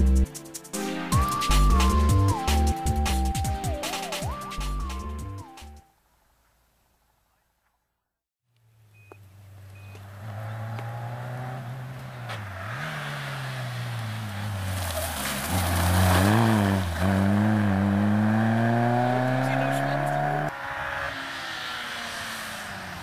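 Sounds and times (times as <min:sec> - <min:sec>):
rally car engine approaching: 0:08.6 - 0:23.0
hiss of passing car: 0:11.9 - 0:17.1.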